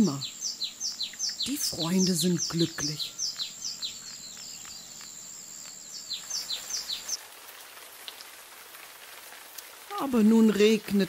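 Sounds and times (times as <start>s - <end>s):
small birds chirping: 0.0s - 7.3s
rain hiss: 0.0s - 11.0s.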